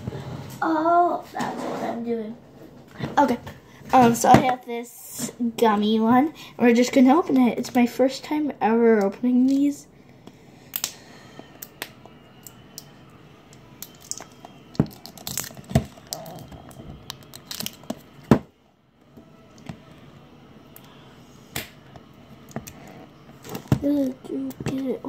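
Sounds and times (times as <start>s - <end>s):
plastic wrapping crackling: 13.8s - 18.2s.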